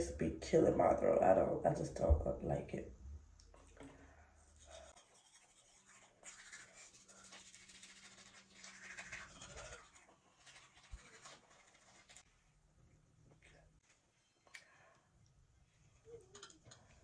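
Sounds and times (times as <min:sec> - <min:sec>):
toothbrush scrubbing teeth: 0:04.4 - 0:12.3.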